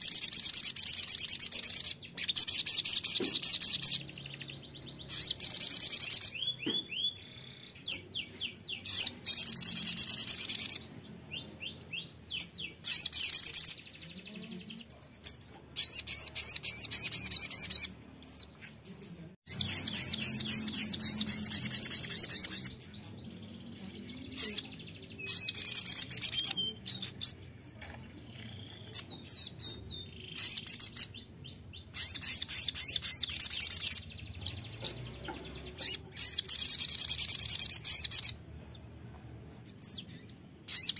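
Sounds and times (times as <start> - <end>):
bird trilling twitters: 12.3 - 14.0, 19.5 - 22.9, 31.9 - 38.4, 39.7 - 40.9.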